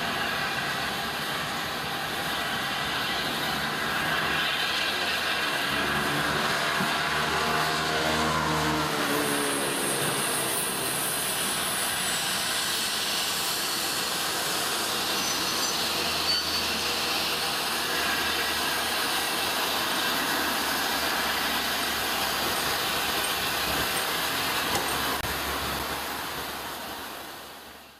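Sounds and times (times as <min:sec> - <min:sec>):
steam locomotive rumbling and hissing: 0:00.0 - 0:27.9.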